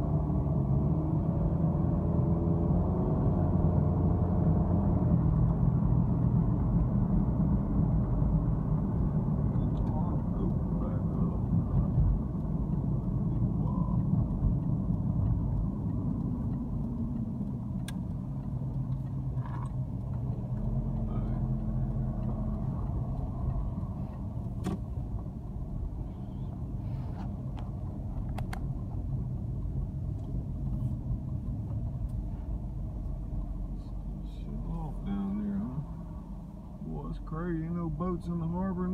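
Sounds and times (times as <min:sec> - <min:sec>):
car engine hum: 0:00.0 - 0:38.9
road rumble: 0:00.0 - 0:38.9.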